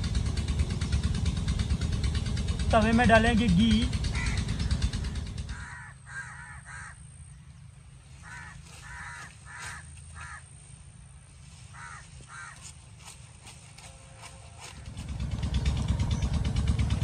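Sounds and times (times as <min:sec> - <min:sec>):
crows cawing: 0:04.0 - 0:07.1, 0:08.1 - 0:10.6, 0:11.5 - 0:12.8, 0:14.6 - 0:15.0.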